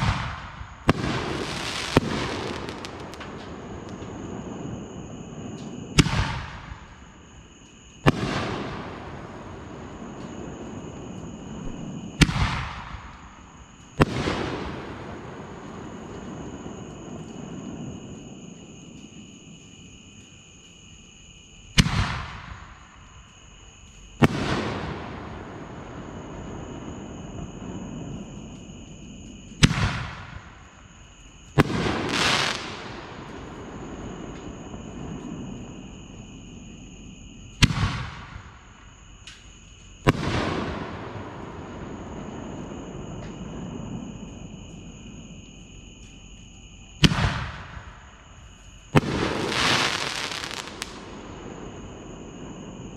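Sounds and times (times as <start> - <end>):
firework crackling: 0.0 - 7.2, 23.8 - 36.8, 47.0 - 52.9.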